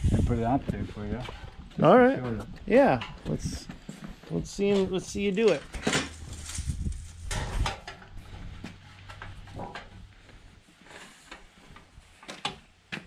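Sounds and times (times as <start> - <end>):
sheet metal knocks and scrapes: 5.5 - 10.0.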